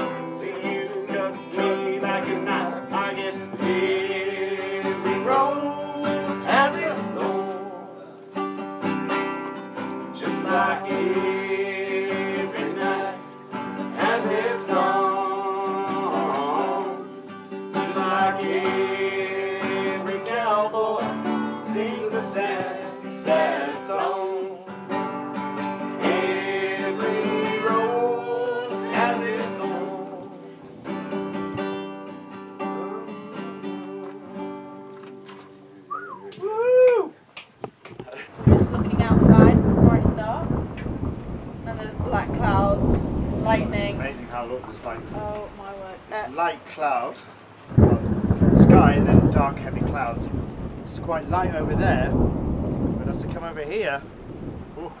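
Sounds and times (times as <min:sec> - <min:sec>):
man singing: 0:00.0 - 0:08.2, 0:10.2 - 0:13.2, 0:13.9 - 0:17.2, 0:17.8 - 0:24.8, 0:26.0 - 0:30.6, 0:32.6 - 0:34.4
classical guitar strumming: 0:00.0 - 0:35.9.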